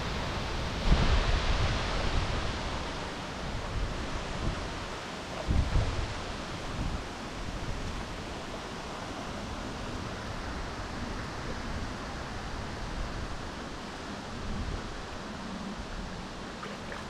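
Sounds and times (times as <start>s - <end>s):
river water rushing: 0.0s - 17.0s
wind buffeting microphone: 0.0s - 17.0s.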